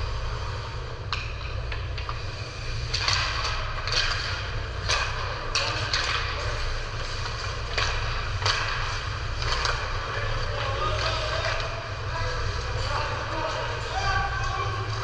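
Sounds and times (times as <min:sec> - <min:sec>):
low hum: 0:00.0 - 0:15.0.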